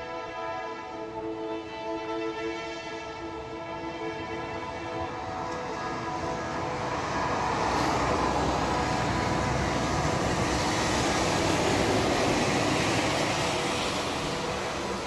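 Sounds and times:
bus engine: 0.0s - 15.0s
tyre hiss on wet road: 6.9s - 15.0s.

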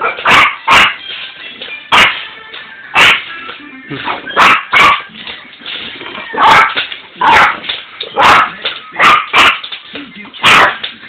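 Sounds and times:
puppy yapping barks: 0.0s - 1.0s, 1.9s - 2.2s, 3.0s - 3.3s, 4.0s - 5.1s, 6.3s - 9.7s, 10.4s - 10.8s.

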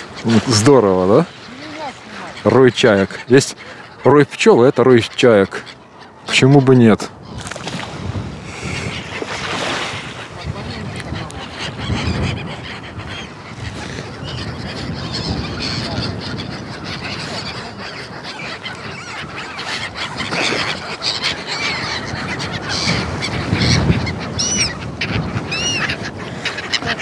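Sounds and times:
gulls calling: 0.0s - 27.0s
wind buffeting microphone: 7.0s - 27.0s.

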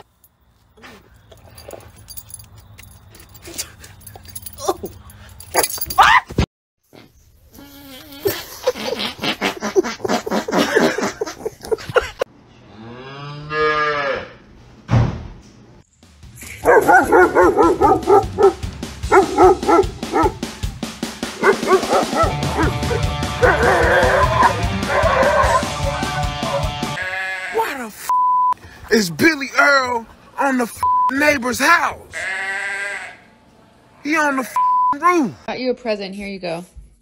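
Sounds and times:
music: 15.9s - 27.0s
dogs barking: 16.6s - 20.5s, 21.3s - 26.8s
dog howling call: 21.7s - 25.8s.

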